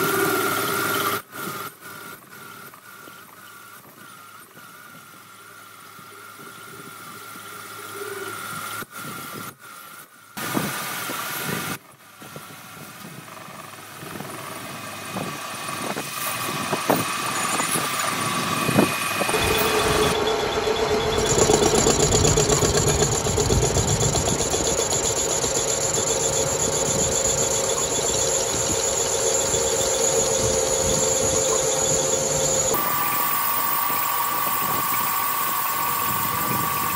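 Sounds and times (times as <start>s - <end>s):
high cutting whine: 13.2s - 36.9s
metal lathe running: 14.8s - 36.9s
metal chips ticking: 19.2s - 36.9s.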